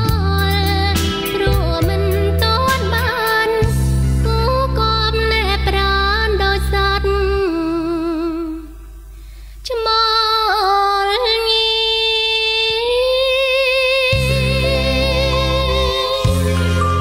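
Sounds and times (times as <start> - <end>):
sparse backing music: 0.0 - 5.8, 14.1 - 17.0
high voice singing with vibrato: 9.7 - 17.0.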